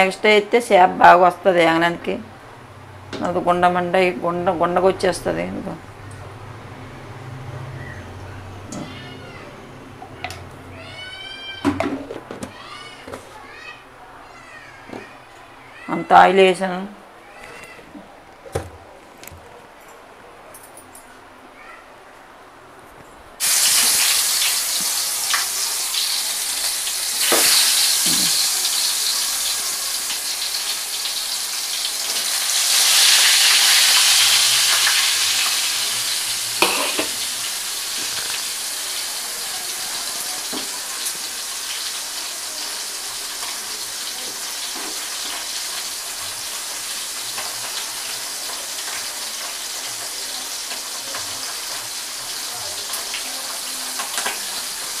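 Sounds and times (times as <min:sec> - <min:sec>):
fish sizzling in hot oil: 0:23.4 - 0:55.0.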